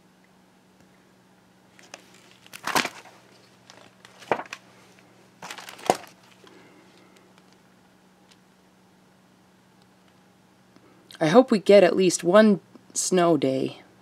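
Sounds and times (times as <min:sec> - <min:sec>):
faint steady hum: 0:00.0 - 0:14.0
paper pages rustling: 0:01.7 - 0:07.6.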